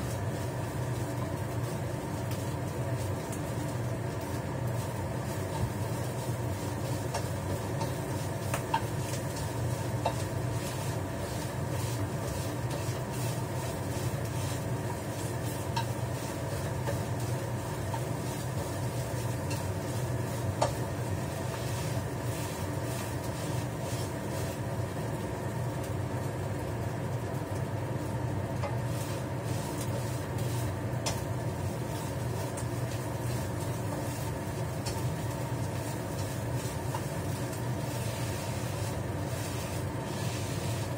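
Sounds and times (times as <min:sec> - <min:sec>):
egg frying in a pan: 0:00.0 - 0:40.9
steady low hum: 0:00.0 - 0:40.9
spatula tapping the pan: 0:07.1 - 0:10.4, 0:15.7 - 0:16.0, 0:16.6 - 0:17.2, 0:19.4 - 0:19.8, 0:20.5 - 0:20.8, 0:31.0 - 0:31.2.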